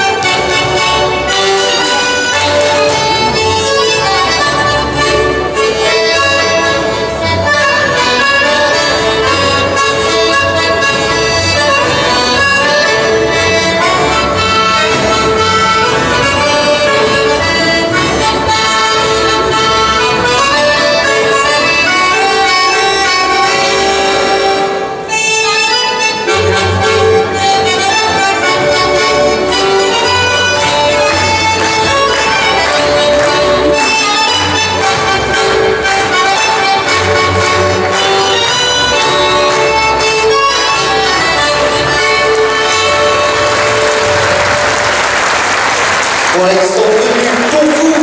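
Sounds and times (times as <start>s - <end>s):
double bass beat: 0.0s - 44.5s
accordion melody: 0.0s - 48.0s.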